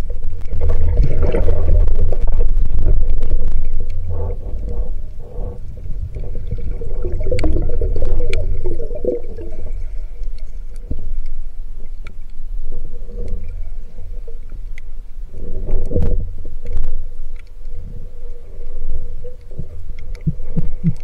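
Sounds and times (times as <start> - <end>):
sharp clicks underwater: 0.0 - 12.5, 13.1 - 21.0
water rushing underwater: 0.0 - 21.0.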